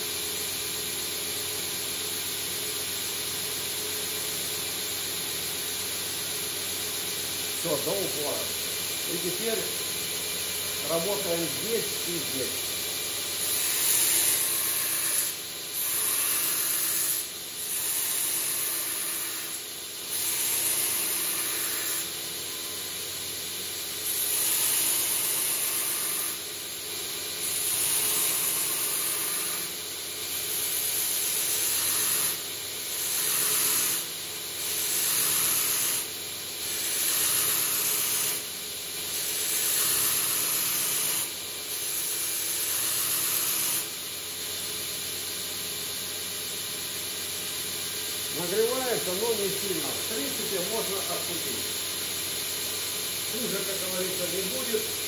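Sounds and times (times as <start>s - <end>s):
belt grinder grinding steel: 13.4s - 22.1s, 33.0s - 34.0s.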